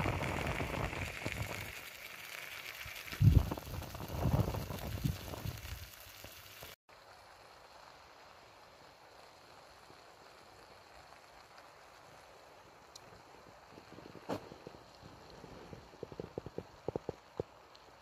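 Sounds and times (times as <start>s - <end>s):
wind rumbling on microphone: 0.0s - 1.8s, 2.8s - 6.0s, 13.1s - 17.6s
food sizzling in a pan: 0.0s - 6.8s
faint steady hiss: 0.0s - 18.0s.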